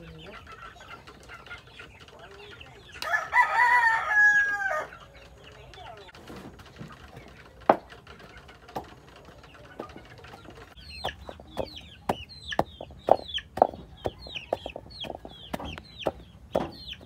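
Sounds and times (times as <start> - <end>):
chickens clucking: 0.0 - 17.0
chicks cheeping: 0.0 - 17.0
wooden pestle pounding mortar: 11.0 - 17.0.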